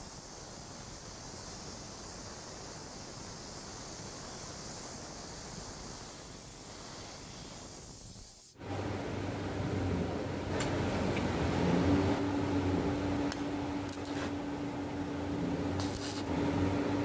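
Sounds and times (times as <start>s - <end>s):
steady hiss: 0.0s - 17.0s
low mechanical hum: 8.6s - 17.0s.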